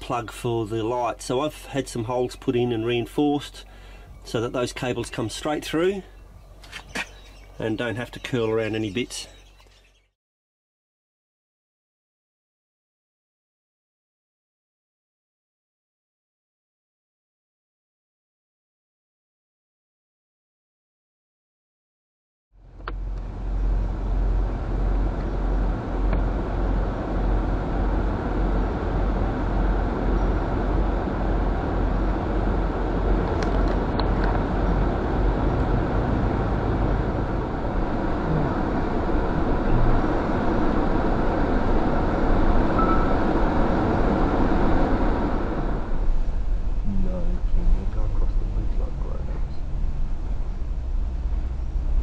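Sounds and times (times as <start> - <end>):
vehicle engine and road rumble: 0.0 - 10.1, 22.6 - 52.0.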